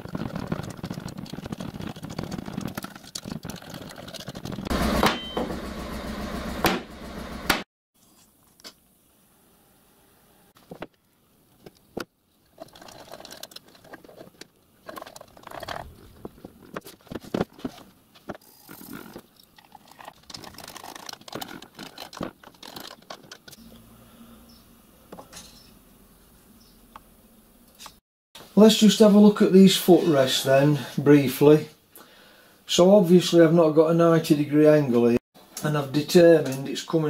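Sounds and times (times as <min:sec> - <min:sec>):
sharp knock: 0:06.6 - 0:07.6
metal bolts clinking and scraping: 0:12.4 - 0:19.2.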